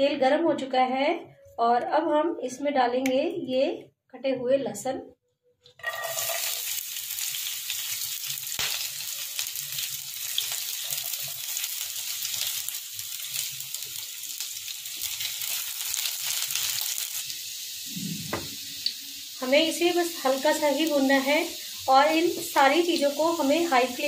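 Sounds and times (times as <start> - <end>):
garlic sizzling in hot oil: 5.8 - 24.0.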